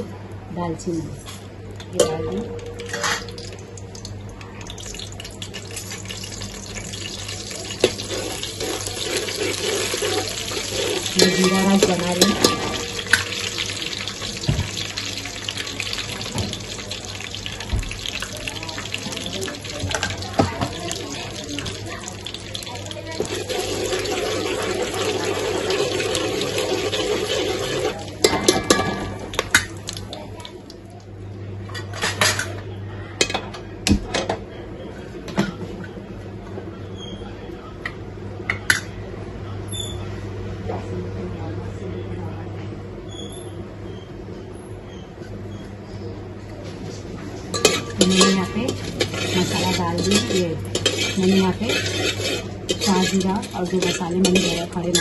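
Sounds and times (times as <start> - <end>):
spices sizzling in hot oil: 3.3 - 28.4, 47.6 - 55.0
metal spoon scraping a pot: 47.6 - 55.0.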